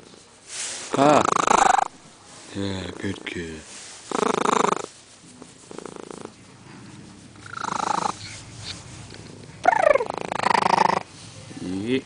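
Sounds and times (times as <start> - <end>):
cat purring loudly: 0.9 - 1.9, 4.1 - 11.9.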